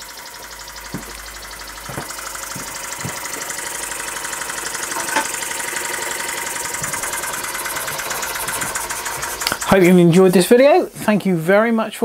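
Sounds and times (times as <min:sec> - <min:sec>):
model steam engine chuffing: 0:00.0 - 0:10.7
sharp click: 0:09.4 - 0:09.7.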